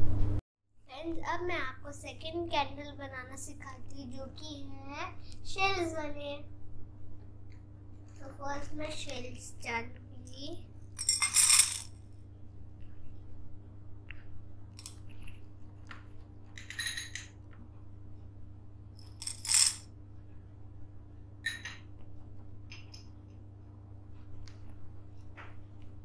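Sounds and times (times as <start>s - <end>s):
seashells clinking in glass: 11.0s - 11.9s, 19.0s - 19.8s.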